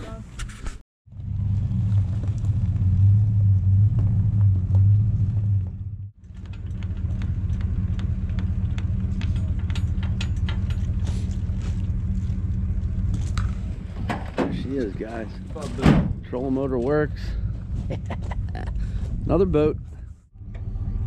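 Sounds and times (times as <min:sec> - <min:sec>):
truck engine idling: 0:03.0 - 0:19.0
light metal clicks and knocks: 0:06.3 - 0:10.9.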